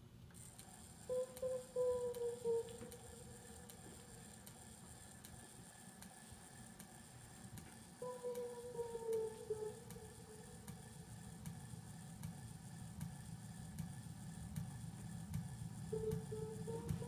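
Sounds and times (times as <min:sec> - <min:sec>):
morse code beeps: 0:16.0 - 0:17.0.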